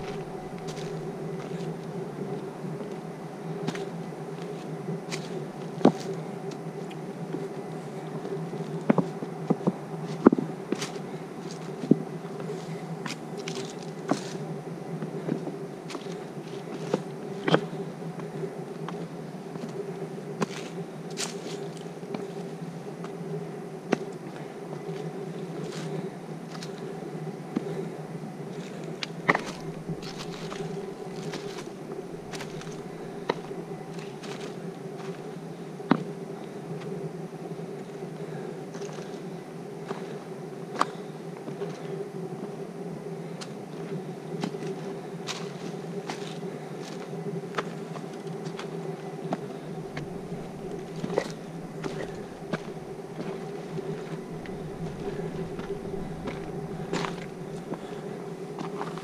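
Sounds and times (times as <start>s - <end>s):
footsteps on trail: 0.0s - 3.0s, 8.6s - 14.4s, 28.6s - 35.4s, 44.4s - 59.0s
steady buzzing hum: 0.0s - 59.0s.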